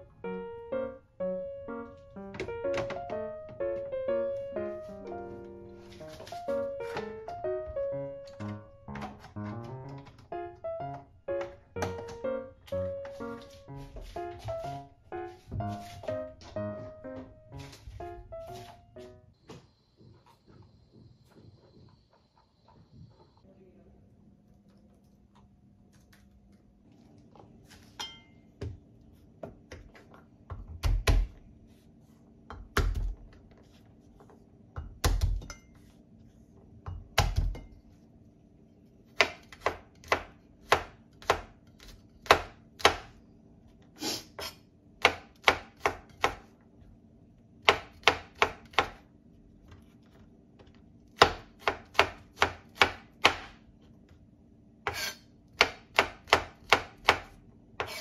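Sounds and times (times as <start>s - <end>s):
knife chopping on wooden board: 39.2s - 43.1s, 47.6s - 49.0s, 51.2s - 53.6s.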